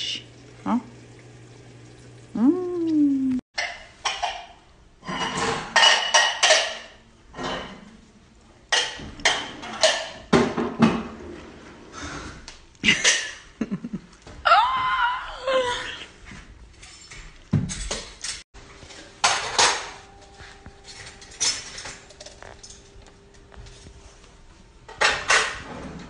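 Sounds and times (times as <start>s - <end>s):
dishes and cutlery clattering: 3.6s - 7.9s, 8.7s - 11.2s, 16.7s - 18.4s, 19.2s - 20.0s, 20.8s - 23.0s, 24.9s - 25.7s.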